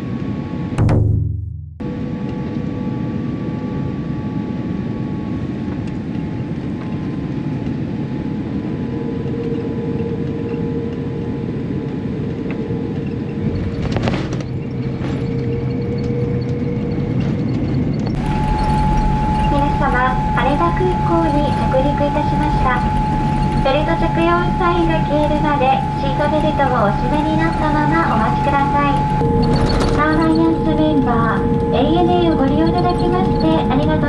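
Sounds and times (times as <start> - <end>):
jet engines and airflow rushing: 1.8 - 34.0
faint whining tones: 5.3 - 34.0
deep rumble: 11.5 - 34.0.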